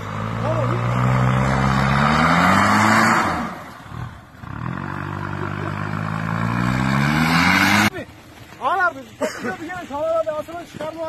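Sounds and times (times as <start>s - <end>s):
pickup engine revving: 0.0s - 8.3s
tyres churning through snow: 0.0s - 11.0s.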